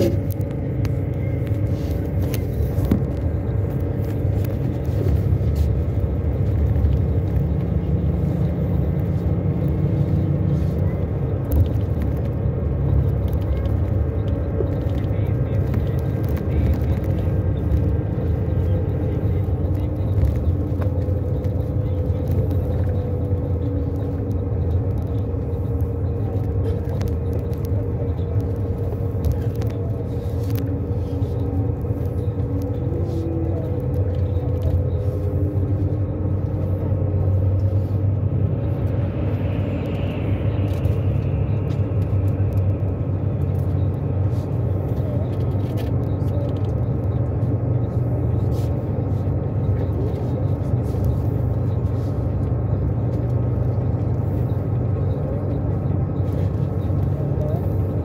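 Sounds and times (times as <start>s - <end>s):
engine and tyre rumble: 0.0s - 58.0s.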